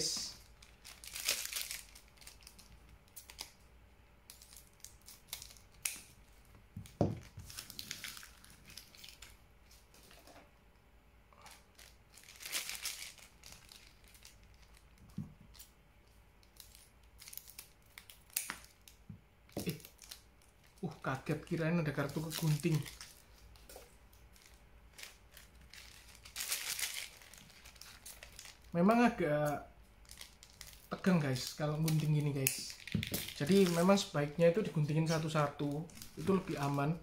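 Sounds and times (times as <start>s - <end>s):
foil packs crinkling: 0.1s - 3.6s, 7.2s - 10.1s, 11.4s - 15.7s, 16.4s - 19.0s, 19.6s - 28.8s, 30.0s - 37.0s.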